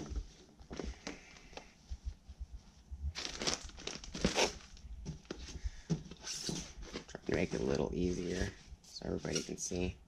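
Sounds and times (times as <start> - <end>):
plastic wrapping crinkling: 3.1 - 5.6.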